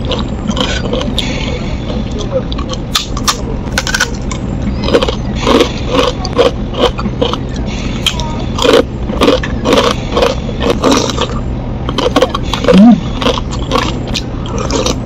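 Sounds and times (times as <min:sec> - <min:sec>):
low steady hum: 0:00.0 - 0:15.0
person chewing crisp food: 0:00.0 - 0:15.0
wet mouth sounds: 0:08.0 - 0:15.0.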